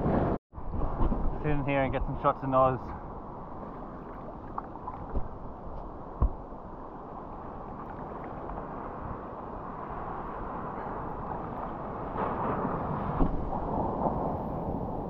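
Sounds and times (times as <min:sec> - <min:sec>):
wind on microphone: 0:02.8 - 0:15.0
sea water sloshing: 0:03.3 - 0:06.3, 0:07.1 - 0:11.8
short thump: 0:06.2 - 0:06.4.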